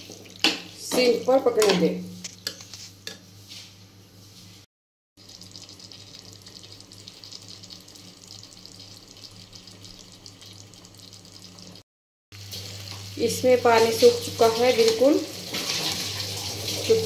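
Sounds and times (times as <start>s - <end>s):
vegetables sizzling in a pan: 12.4s - 17.0s.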